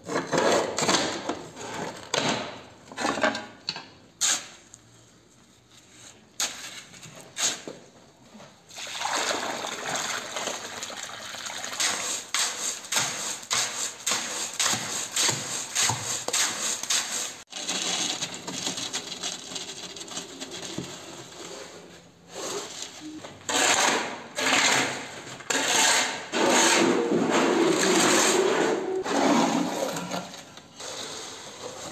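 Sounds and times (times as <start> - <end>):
shovel scraping sand on concrete: 4.2 - 4.7, 5.8 - 7.7, 11.8 - 18.0, 21.4 - 31.9
water pouring: 8.7 - 12.3
shovel scraping in wheelbarrow: 11.8 - 31.9.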